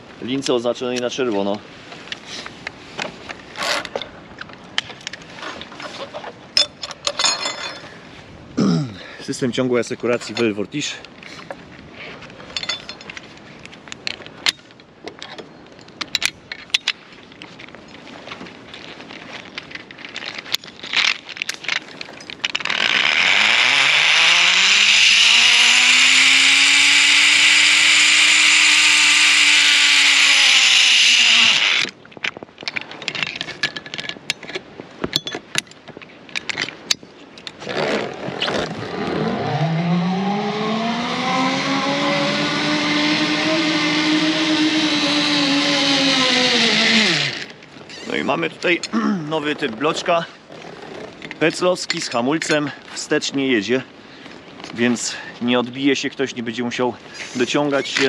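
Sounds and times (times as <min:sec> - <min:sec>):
metal trolley and carabiners clanking: 0:05.3 - 0:08.0, 0:10.0 - 0:11.0, 0:12.5 - 0:13.4, 0:19.3 - 0:22.9, 0:47.4 - 0:53.1
zip line pulley whining on cable: 0:22.5 - 0:32.0, 0:38.7 - 0:47.6.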